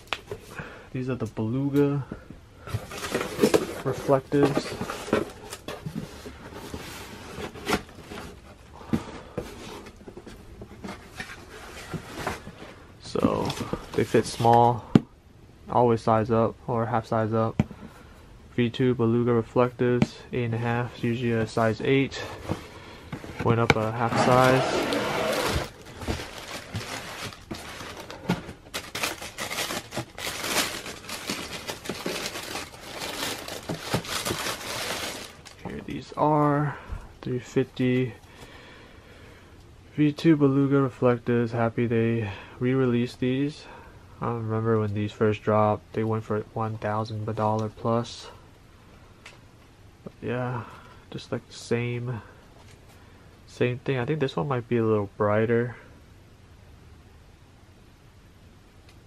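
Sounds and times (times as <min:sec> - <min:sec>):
cardboard scraping and rustling: 0:02.7 - 0:14.5, 0:22.2 - 0:35.6
paper crinkling and rustling: 0:23.3 - 0:35.7.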